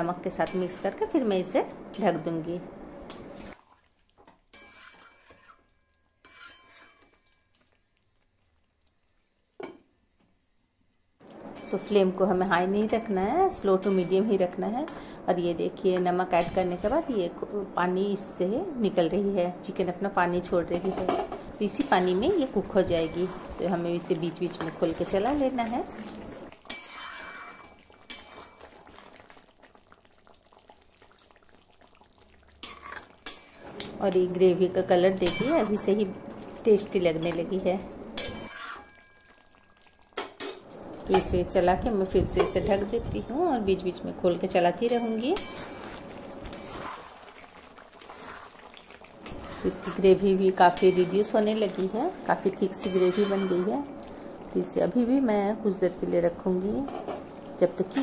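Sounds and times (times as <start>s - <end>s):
faint bubbling hiss of simmering: 0.0s - 58.0s
faint stirring: 3.0s - 9.8s, 11.2s - 58.0s
spatula scraping metal pan: 4.5s - 7.4s, 26.7s - 28.6s, 32.6s - 33.9s, 38.2s - 39.1s, 46.5s - 47.1s, 49.2s - 53.8s.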